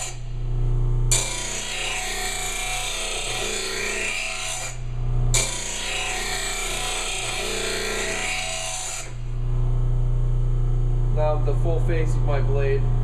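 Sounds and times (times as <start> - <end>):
grinder motor hum: 0.0 - 13.0.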